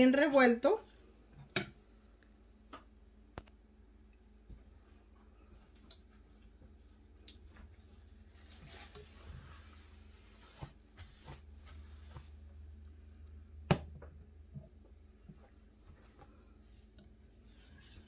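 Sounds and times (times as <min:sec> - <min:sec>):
scraping rustle: 0:08.2 - 0:12.3.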